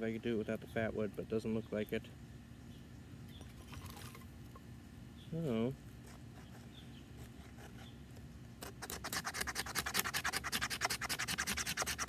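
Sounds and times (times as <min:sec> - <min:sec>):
knife scraping wood: 0:06.0 - 0:08.0, 0:08.6 - 0:12.0.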